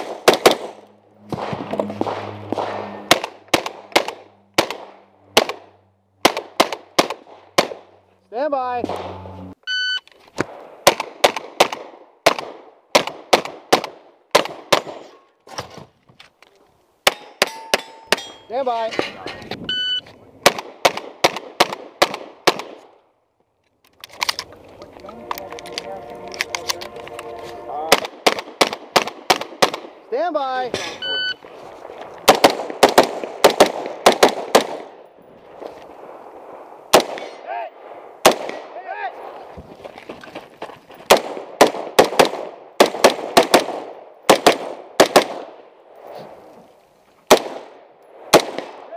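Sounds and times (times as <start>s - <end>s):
gunshots: 0.0s - 7.9s, 8.8s - 9.4s, 10.4s - 15.2s, 20.4s - 22.9s, 27.8s - 30.0s, 32.2s - 35.0s, 36.9s - 39.4s, 41.1s - 45.6s, 47.3s - 48.9s
gunshots with echo: 0.0s - 7.9s, 8.8s - 9.4s, 27.8s - 30.0s, 32.3s - 35.0s
electronic start beep: 9.2s - 10.0s, 19.6s - 20.0s, 31.0s - 31.4s.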